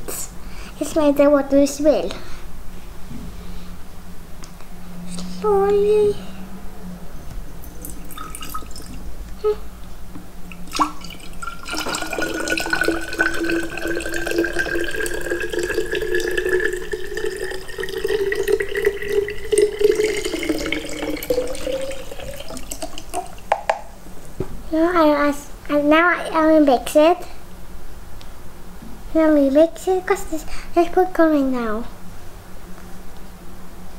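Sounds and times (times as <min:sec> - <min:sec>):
water dripping: 0:07.6 - 0:09.0, 0:10.5 - 0:23.9
water pouring into bottle: 0:07.8 - 0:09.0, 0:10.5 - 0:23.7.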